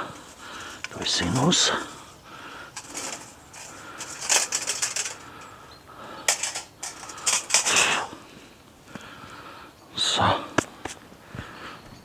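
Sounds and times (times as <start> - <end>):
hard objects clinking and rattling: 2.7 - 5.6, 6.2 - 8.0.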